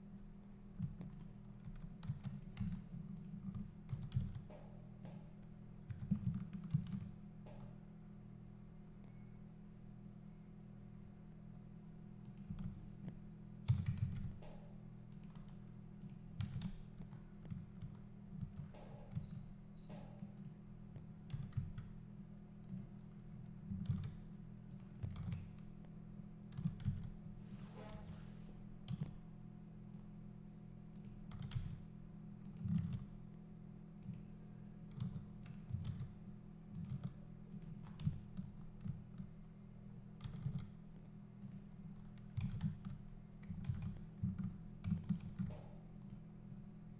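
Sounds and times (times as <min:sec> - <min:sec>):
steady low hum: 0:00.0 - 0:46.9
keyboard and mouse clicks: 0:00.8 - 0:07.8, 0:12.2 - 0:21.9, 0:22.6 - 0:25.7, 0:32.4 - 0:33.2, 0:34.0 - 0:34.3, 0:34.9 - 0:36.1, 0:36.7 - 0:39.3, 0:40.2 - 0:40.7, 0:41.4 - 0:46.2.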